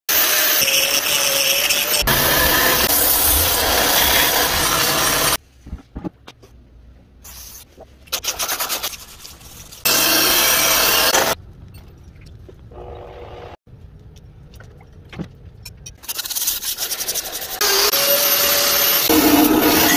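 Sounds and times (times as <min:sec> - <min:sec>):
power grinder grinding steel: 0:00.1 - 0:05.4, 0:09.9 - 0:11.4, 0:17.3 - 0:19.9.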